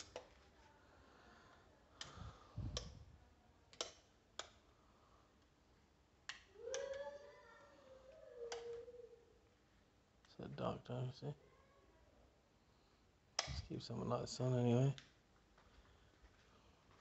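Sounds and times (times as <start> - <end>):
wall switches clicking: 2.0 - 3.0, 3.7 - 4.6, 6.2 - 7.0, 8.5 - 8.8, 13.4 - 13.7.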